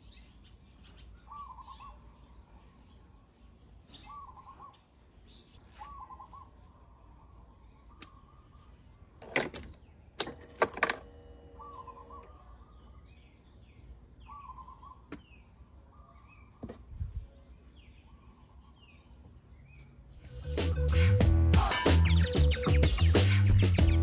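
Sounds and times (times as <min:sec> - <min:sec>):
bird warbling: 0:05.7 - 0:06.8, 0:11.6 - 0:12.9.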